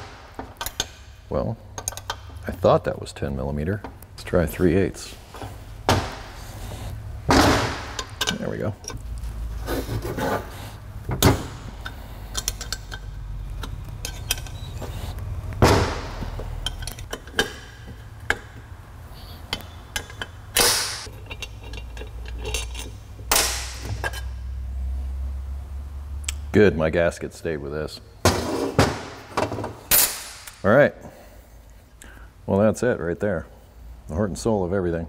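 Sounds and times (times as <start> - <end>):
steady low hum: 0.0 - 35.0
wrench clinking on metal: 0.5 - 2.4, 8.0 - 9.0, 11.7 - 14.8, 16.4 - 18.6, 19.5 - 24.4.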